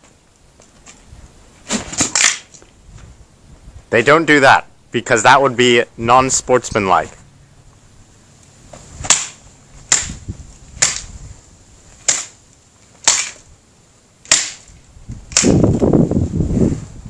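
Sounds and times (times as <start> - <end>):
racket frame scraping crunch: 0.8 - 2.6
tennis racket smashing cracks: 1.7 - 2.6, 9.0 - 10.2.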